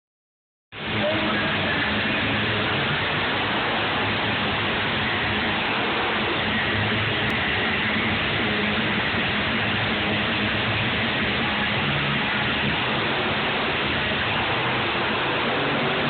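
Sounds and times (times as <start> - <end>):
monster truck engines running: 0.8 - 16.0.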